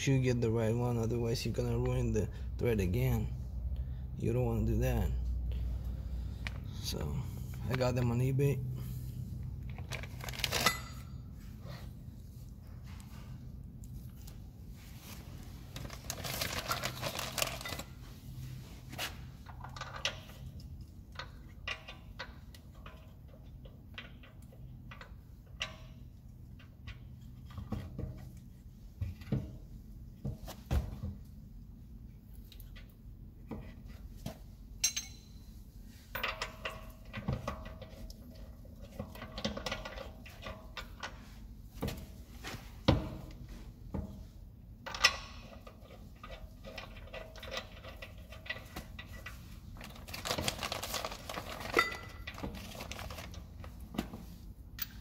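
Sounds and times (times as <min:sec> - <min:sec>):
low steady hum: 0:00.0 - 0:55.0
metal bolts clinking: 0:34.8 - 0:35.5, 0:44.8 - 0:49.4.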